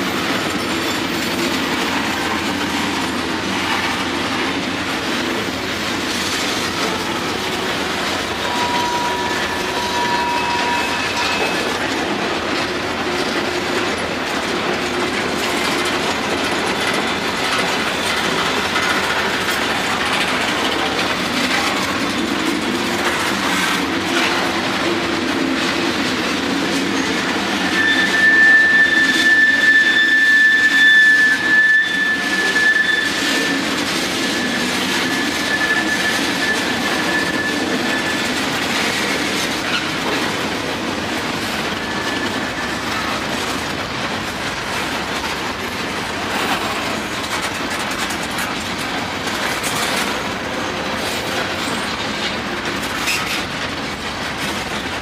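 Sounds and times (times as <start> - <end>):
train wheels clattering: 0.0 - 55.0
wheel squeal: 6.1 - 24.9, 26.6 - 40.4, 41.2 - 43.7, 44.7 - 53.6.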